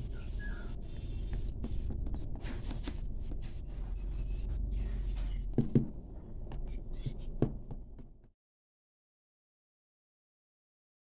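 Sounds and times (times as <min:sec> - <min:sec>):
dull knocks: 0:05.5 - 0:08.2.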